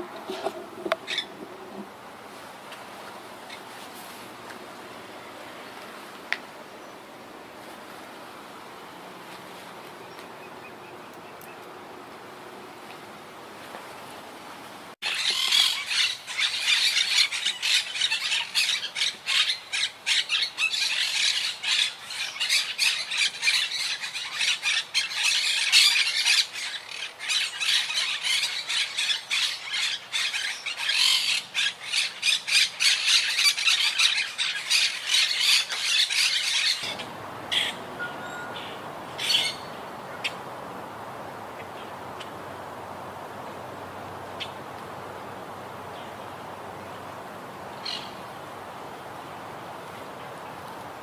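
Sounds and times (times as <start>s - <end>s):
parakeets squawking: 0.4s - 1.4s, 15.0s - 40.4s.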